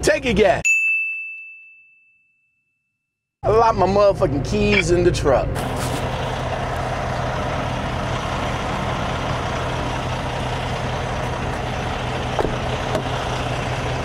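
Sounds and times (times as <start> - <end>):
diesel truck engine idling: 3.6 - 14.0.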